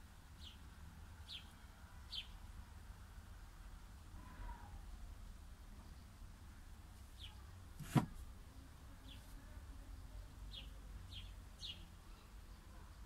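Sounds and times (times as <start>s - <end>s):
bird chirping: 0.4s - 2.4s, 7.2s - 7.5s, 10.5s - 13.0s.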